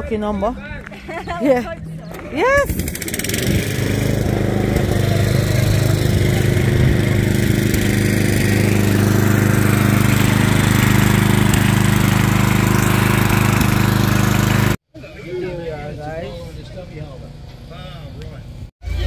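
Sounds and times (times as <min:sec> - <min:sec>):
small lawn mower engine running: 0:02.6 - 0:14.8.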